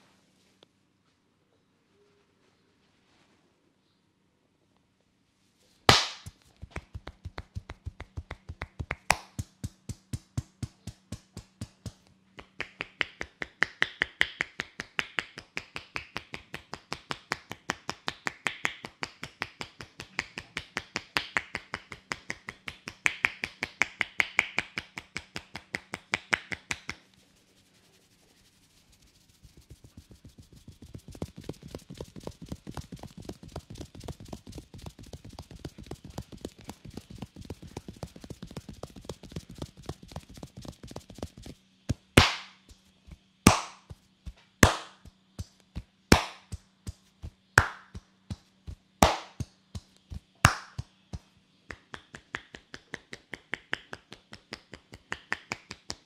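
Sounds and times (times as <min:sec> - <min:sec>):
hands tapping and slapping head: 0:05.9 - 0:27.0, 0:29.4 - 0:42.8, 0:43.5 - 0:56.0.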